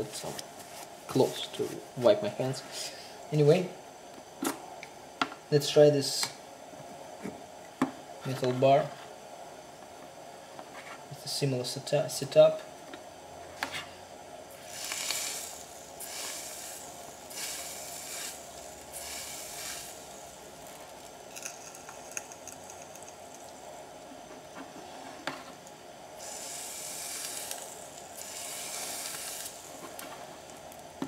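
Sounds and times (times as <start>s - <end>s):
electropolishing brush fizzing: 14.5s - 23.6s, 26.2s - 30.0s.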